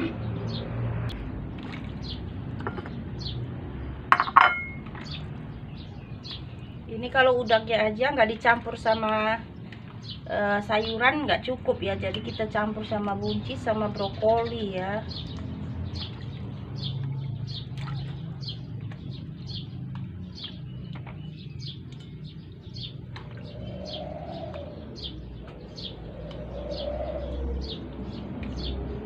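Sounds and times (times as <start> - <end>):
birds chirping: 0.0 - 29.0
low cooing bird call: 22.7 - 29.0.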